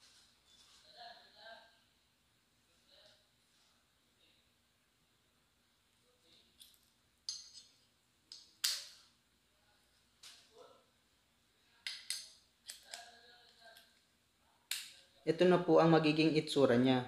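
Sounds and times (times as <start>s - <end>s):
metallic clicks and clinks: 6.6s - 9.0s.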